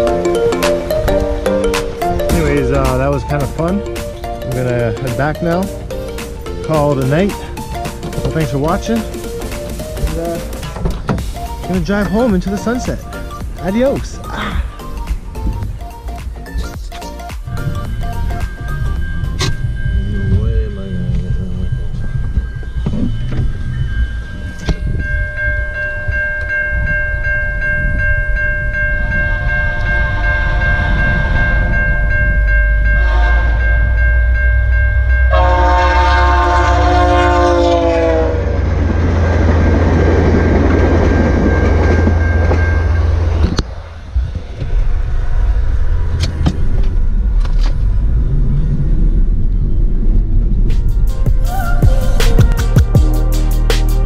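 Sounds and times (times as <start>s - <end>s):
level-crossing bell ringing: 0.0s - 15.1s, 15.8s - 37.7s, 39.0s - 43.6s
train passing rumble: 0.0s - 54.0s
train horn: 29.3s - 31.8s, 32.9s - 33.9s, 35.2s - 38.7s.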